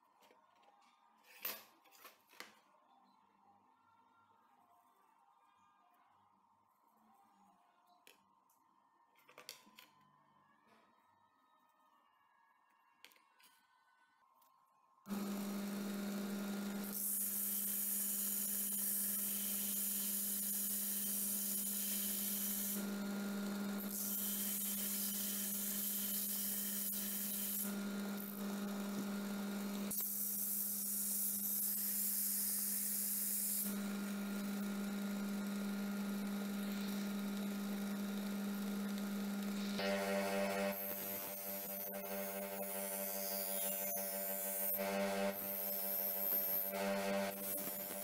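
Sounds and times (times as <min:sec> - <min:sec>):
belt sander motor hum: 0:15.1 - 0:48.0.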